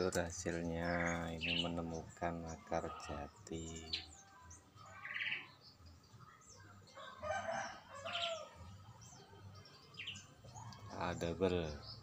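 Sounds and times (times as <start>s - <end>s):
bird buzzy chirp: 0.0s - 12.0s
rooster crowing: 6.9s - 8.6s.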